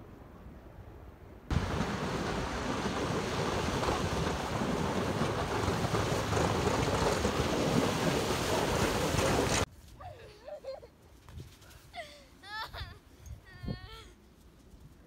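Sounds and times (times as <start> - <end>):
plow blade scraping snow: 1.5 - 9.7.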